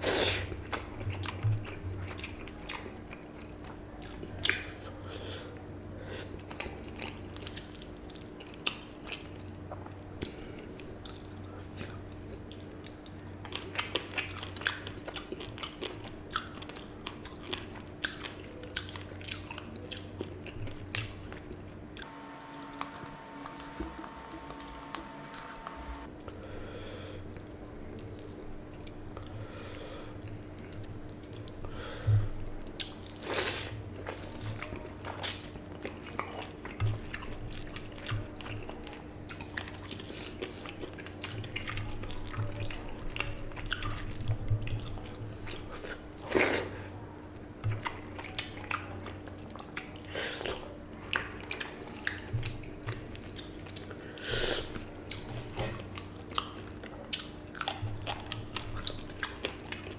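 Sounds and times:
low hum: 22.0 - 32.7.

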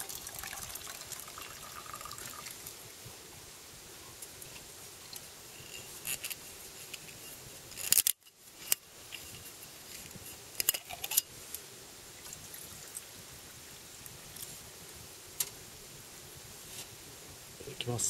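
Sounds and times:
water poured into metal mug: 0.0 - 2.8.

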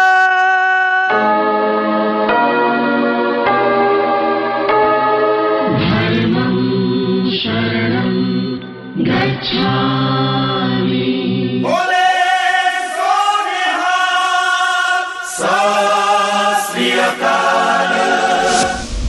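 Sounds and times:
higher held sung line: 11.6 - 18.9
low voices chanting: 11.6 - 18.9.

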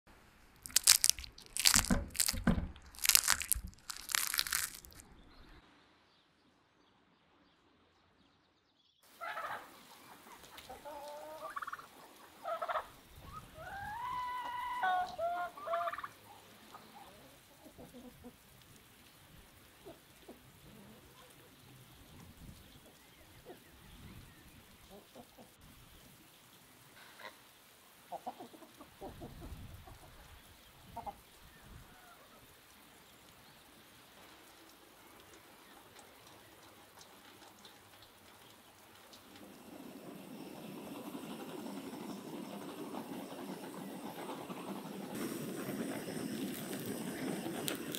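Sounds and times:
chicken skin crunching: 0.6 - 5.0.

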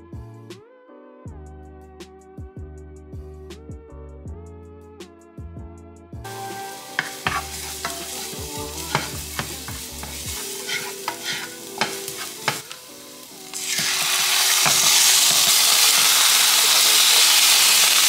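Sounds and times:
chicken sizzling in hot pan: 6.3 - 18.0
garlic sizzling in oil: 6.3 - 18.0
spatula scraping a pan: 6.4 - 17.5.

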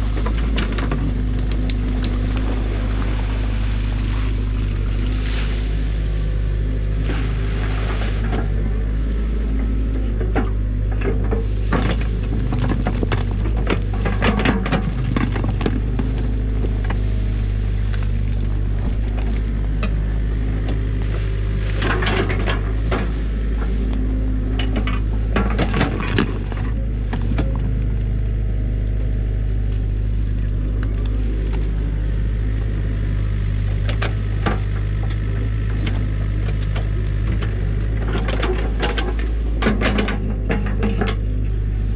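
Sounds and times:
diesel engine running: 0.0 - 41.9
sticks clattering and cracking: 0.1 - 6.3, 10.1 - 28.0, 30.7 - 32.0.

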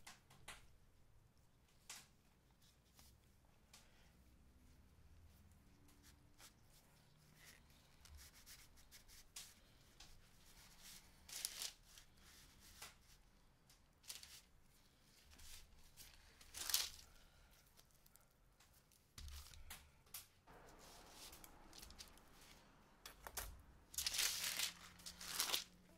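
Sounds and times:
gloved hands rustling: 1.7 - 25.9
paper crinkling: 6.4 - 19.7, 20.5 - 25.9.

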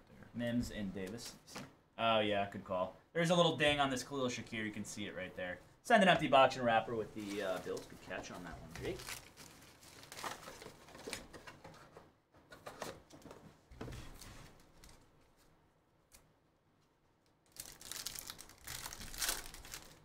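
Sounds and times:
foil wrapper crinkling: 7.2 - 11.3, 17.5 - 20.0
foil wrapper tearing: 8.7 - 10.6, 17.5 - 20.0.

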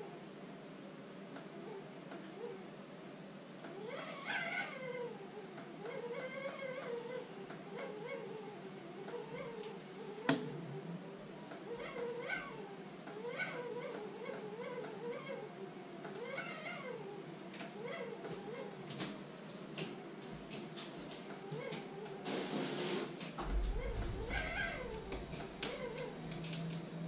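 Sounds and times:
wavering voice-like sounds: 23.4 - 26.7.

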